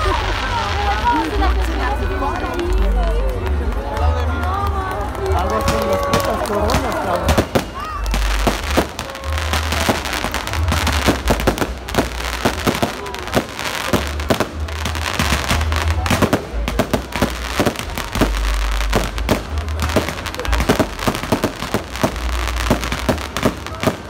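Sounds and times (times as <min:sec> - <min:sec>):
fireworks crackling: 0:00.0 - 0:24.0
fireworks bangs and pops: 0:05.1 - 0:24.0.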